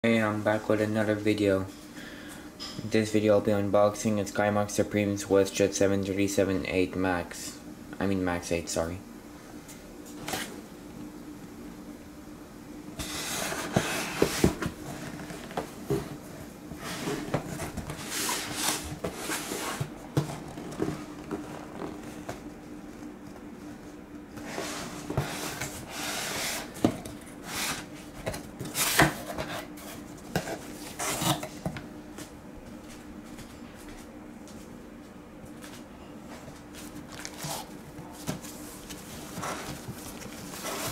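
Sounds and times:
faint hum: 0:00.0 - 0:40.9
cardboard box scraping: 0:39.1 - 0:40.9.

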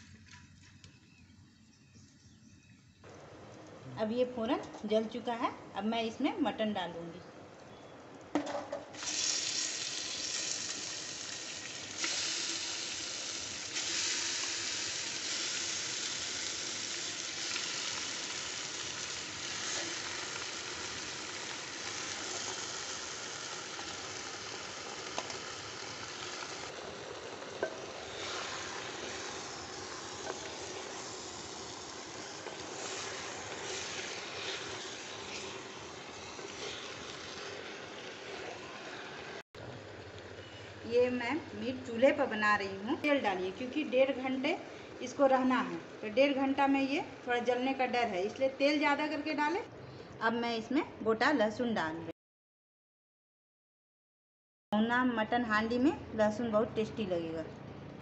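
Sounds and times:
meat and onions sizzling in oil: 0:08.4 - 0:44.6.

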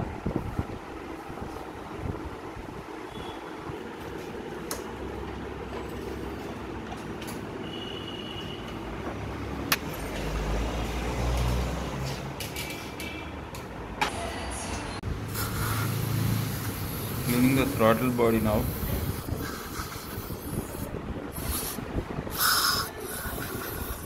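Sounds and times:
road traffic rumble: 0:00.0 - 0:24.0
vehicle passing: 0:09.1 - 0:12.5, 0:13.8 - 0:19.0.

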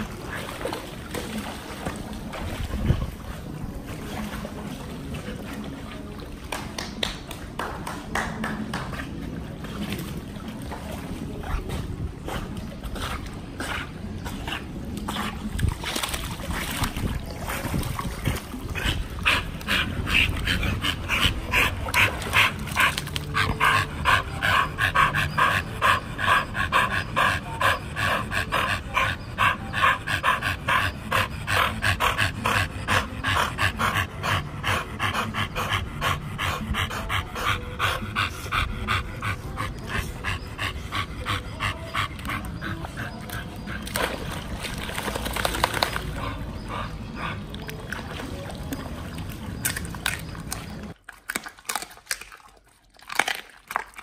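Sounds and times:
dog panting: 0:16.9 - 0:48.2.

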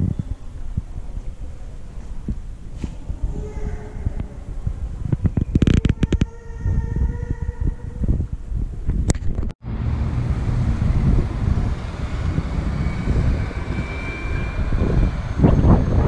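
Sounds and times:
road traffic rumble: 0:09.6 - 0:16.0
rushing traffic surge: 0:09.6 - 0:16.0.

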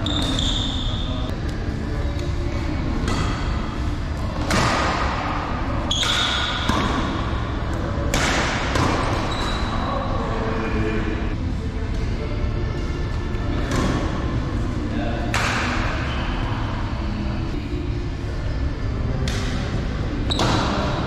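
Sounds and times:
sneakers squeaking on court floor: 0:00.0 - 0:01.3, 0:08.8 - 0:09.8
steady hall hum: 0:00.0 - 0:21.0
rackets striking shuttlecock: 0:05.9 - 0:09.6, 0:19.2 - 0:19.6.

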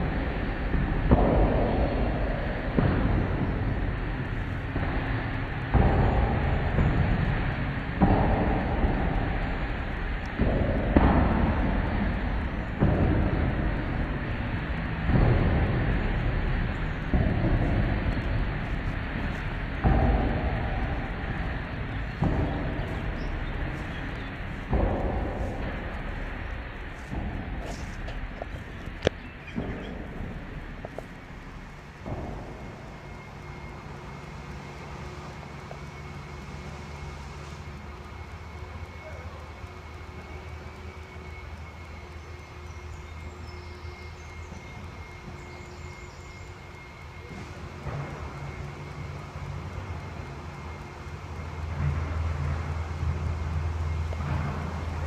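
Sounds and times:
faint high whine: 0:00.0 - 0:55.0
low engine drone: 0:00.0 - 0:55.0
low steady rumble: 0:00.0 - 0:55.0.

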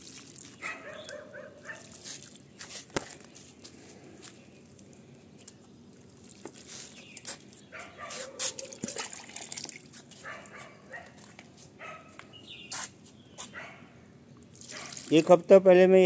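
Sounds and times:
dog calling: 0:00.6 - 0:01.9, 0:07.7 - 0:09.1, 0:10.2 - 0:11.2, 0:11.8 - 0:12.2, 0:13.4 - 0:13.9.

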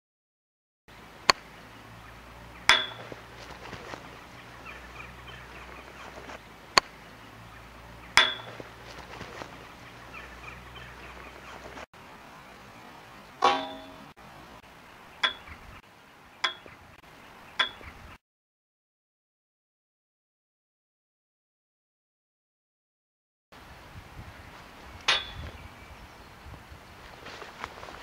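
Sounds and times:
ball clanging on metal goal frame: 0:02.6 - 0:03.2, 0:08.1 - 0:08.7, 0:13.4 - 0:14.1, 0:15.2 - 0:15.5, 0:16.4 - 0:16.7, 0:25.1 - 0:25.4
golf club striking ball: 0:02.6 - 0:04.2, 0:08.1 - 0:09.0, 0:13.4 - 0:14.2, 0:15.2 - 0:15.5, 0:16.4 - 0:16.7, 0:25.1 - 0:25.4.

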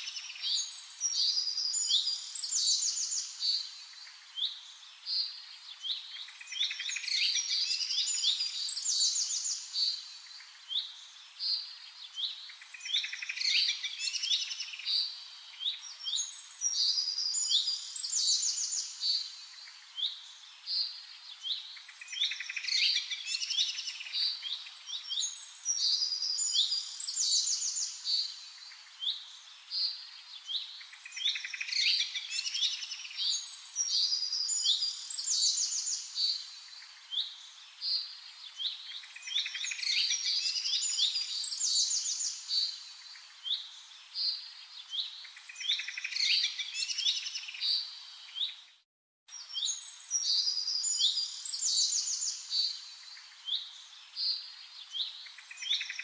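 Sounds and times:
small birds chirping: 0:00.0 - 0:56.0.

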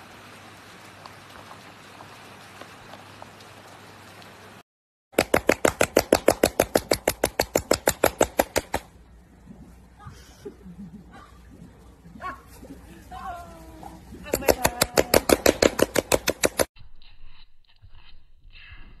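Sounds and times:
rain hiss: 0:00.0 - 0:04.6.

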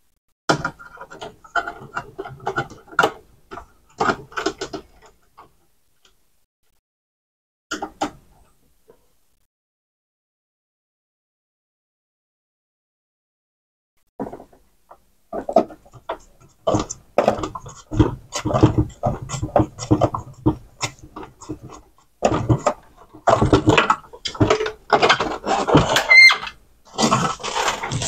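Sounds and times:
plastic parts clicking and rattling: 0:00.5 - 0:06.2, 0:14.2 - 0:28.0
short squeak: 0:25.9 - 0:26.6.

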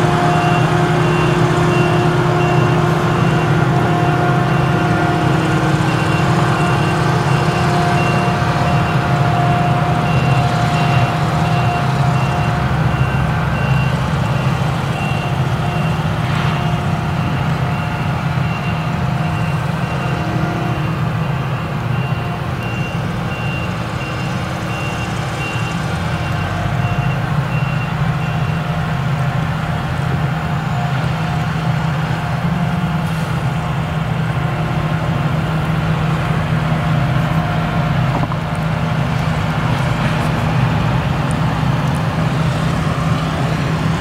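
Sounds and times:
reversing beeper: 0:00.0 - 0:29.2
harvester engine running: 0:00.0 - 0:44.0.

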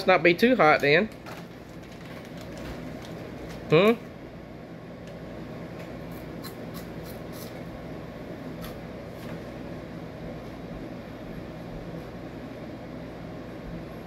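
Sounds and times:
room noise hum: 0:00.0 - 0:14.0
snack bag crinkling: 0:01.2 - 0:03.7.

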